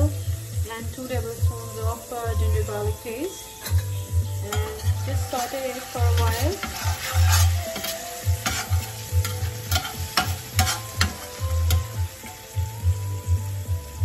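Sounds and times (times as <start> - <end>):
paste sizzling in oil: 0.0 - 14.0
spatula scraping a metal pan: 3.6 - 12.4.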